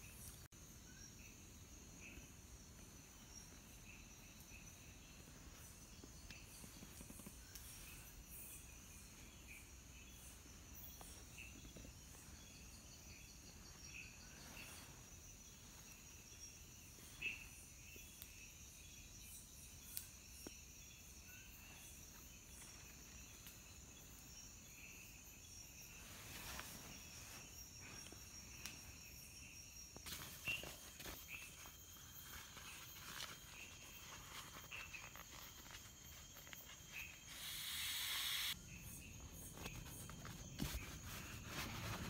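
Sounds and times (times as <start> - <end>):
night insects chirring: 0.0 - 42.0
loud hiss: 37.3 - 38.6.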